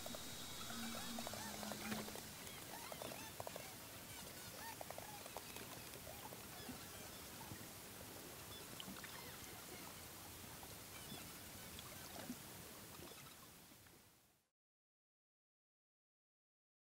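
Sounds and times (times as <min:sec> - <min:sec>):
underwater hiss: 0:00.0 - 0:02.8
small crackles and clicks: 0:00.0 - 0:07.6.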